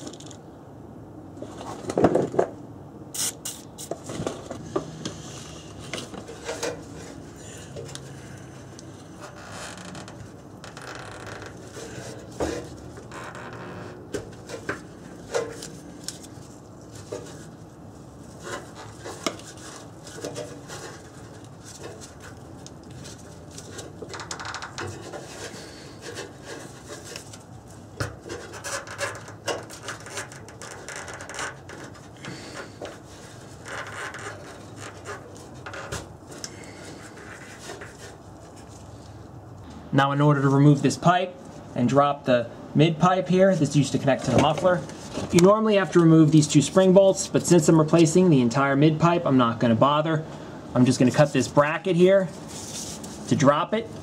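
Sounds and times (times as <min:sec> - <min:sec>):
rubber scraping against metal: 0:03.2 - 0:39.1, 0:51.0 - 0:53.4.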